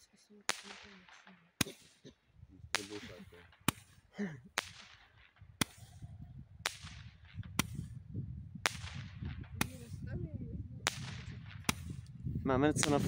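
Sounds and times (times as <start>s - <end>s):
roman candle shots cracking: 0.5s - 2.1s, 2.7s - 8.0s, 8.6s - 10.0s, 10.8s - 12.2s, 12.8s - 13.0s.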